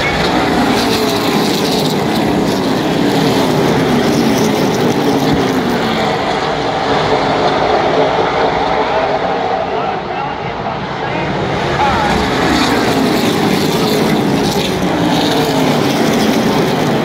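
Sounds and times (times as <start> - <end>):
race car engines roaring: 0.0 - 17.0.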